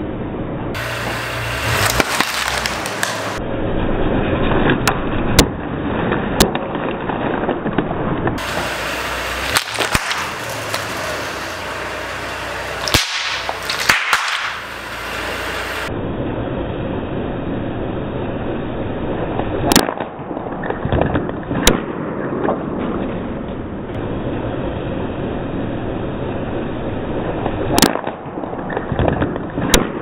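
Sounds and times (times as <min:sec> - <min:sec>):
car tyre rumbling on paving: 0:00.0 - 0:30.0
plastic bottles cracking: 0:01.6 - 0:03.4, 0:09.4 - 0:12.1, 0:12.7 - 0:14.6.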